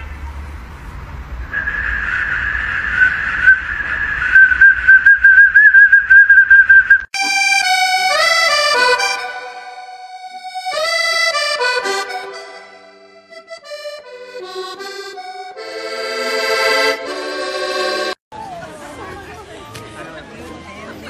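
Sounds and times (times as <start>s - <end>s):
accordion-like melody: 7.2s - 18.2s.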